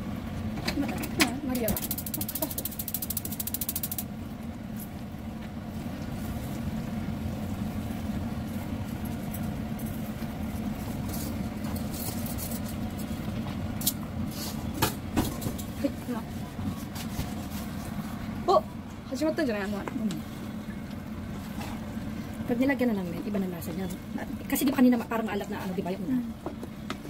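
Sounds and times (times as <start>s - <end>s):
low machine hum: 0.0s - 27.0s
fast high ticking: 1.6s - 4.1s.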